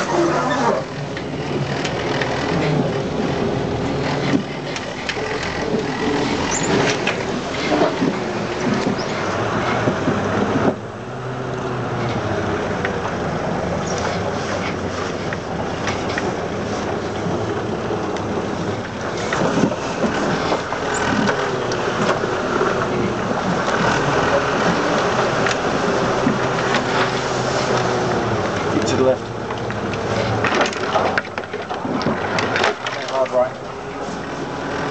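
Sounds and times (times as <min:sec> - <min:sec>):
off-road vehicle engine running: 0:00.0 - 0:34.9
knocks and rattles: 0:13.8 - 0:33.6.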